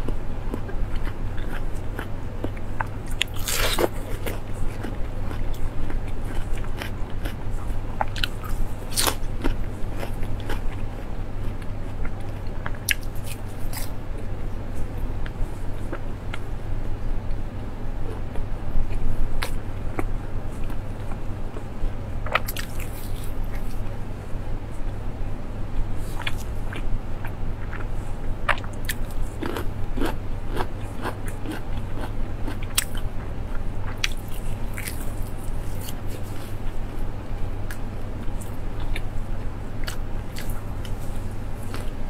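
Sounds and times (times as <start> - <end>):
person chewing fried food: 0.0 - 16.5, 26.0 - 42.0
steady low hum: 0.0 - 42.0.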